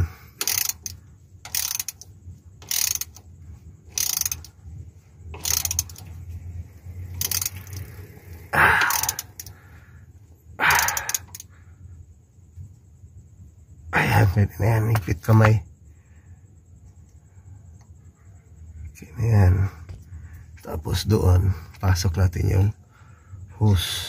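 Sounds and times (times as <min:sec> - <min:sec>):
socket ratchet clicking: 0:00.3 - 0:03.3, 0:03.9 - 0:04.6, 0:05.4 - 0:06.1, 0:07.1 - 0:08.0, 0:08.7 - 0:09.6, 0:10.7 - 0:11.5.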